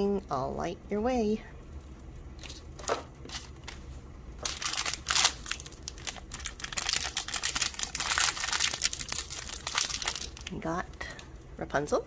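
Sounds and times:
plastic wrapper crinkling: 4.4 - 10.6
plastic wrapper ripping: 4.4 - 10.6.

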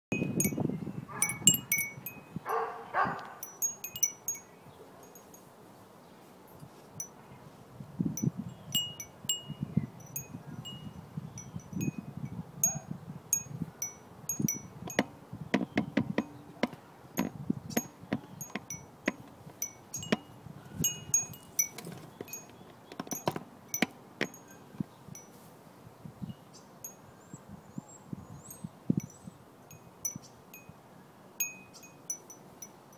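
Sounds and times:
wind chime tinkling: 0.1 - 2.4, 3.4 - 5.5, 8.2 - 15.2, 17.2 - 25.4, 31.4 - 32.8.

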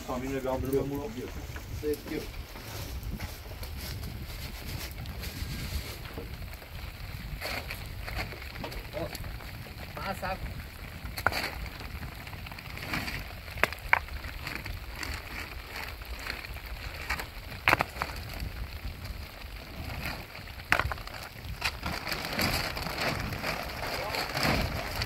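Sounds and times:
plastic sheeting rustling: 0.0 - 25.0
stones knocking down: 17.0 - 18.2, 20.5 - 25.0.

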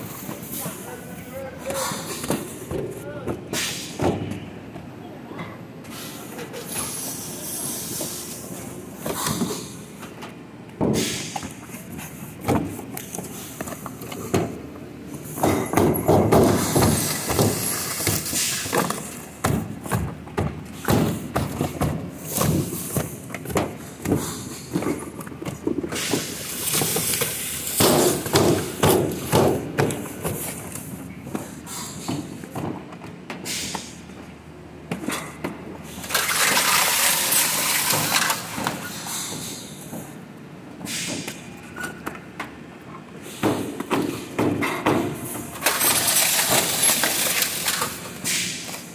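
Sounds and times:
cartons and bags being handled: 15.2 - 33.0.

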